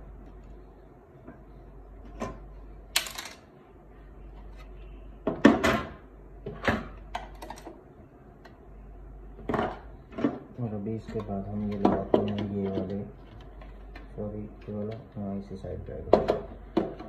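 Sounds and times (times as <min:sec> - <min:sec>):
plastic parts clicking and knocking: 0:05.3 - 0:07.8, 0:09.4 - 0:15.2, 0:16.0 - 0:17.0.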